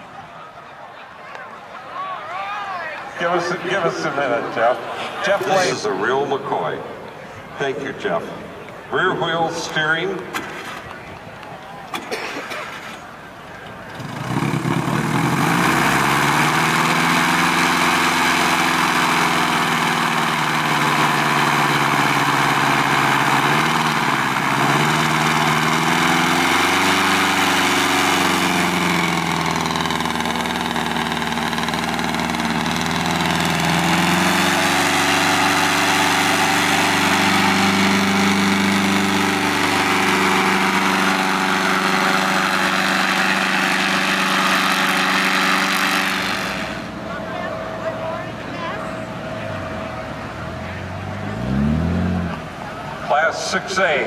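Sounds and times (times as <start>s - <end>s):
propeller car engine droning: 3.0s - 54.0s
propeller spinning: 12.7s - 54.0s.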